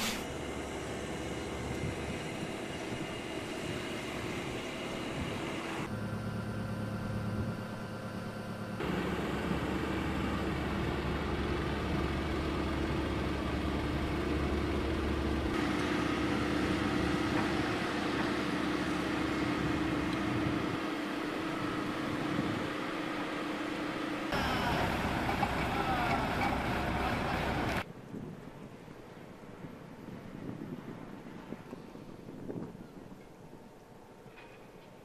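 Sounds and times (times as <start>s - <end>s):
truck diesel engine: 0.0s - 27.8s
excavator engine: 0.0s - 27.9s.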